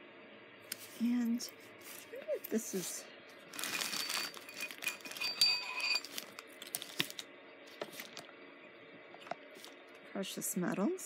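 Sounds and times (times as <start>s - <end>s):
packaging crinkling: 3.4s - 8.3s.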